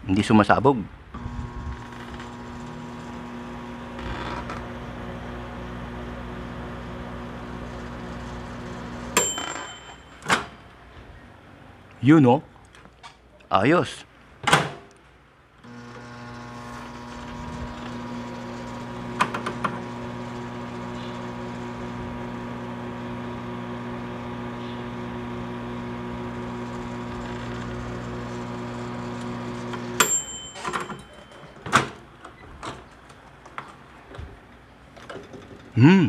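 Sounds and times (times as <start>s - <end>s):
microwave oven humming: 1.2s - 10.3s, 15.6s - 32.0s
timer bell ding: 9.2s - 10.3s, 30.0s - 31.7s
clunks: 29.2s - 35.8s.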